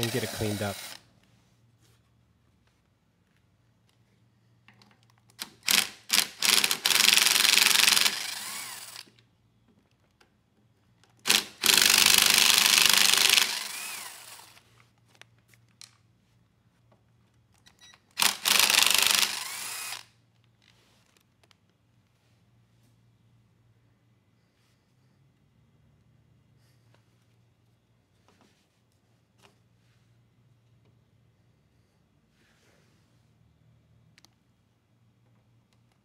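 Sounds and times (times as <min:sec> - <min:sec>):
cordless power driver whining: 0:00.0 - 0:01.0, 0:05.6 - 0:09.1, 0:11.3 - 0:14.6, 0:18.2 - 0:20.1.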